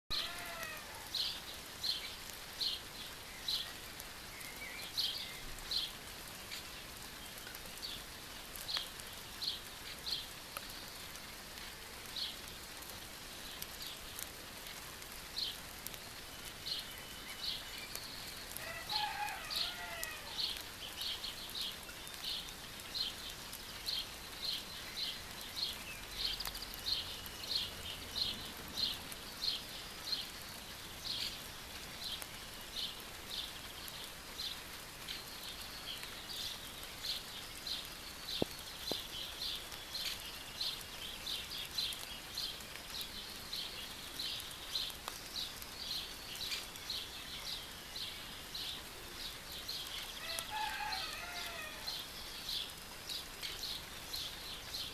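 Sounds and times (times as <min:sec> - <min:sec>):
light rain: 0:00.1 - 0:54.9
small bird chirping: 0:32.1 - 0:50.5.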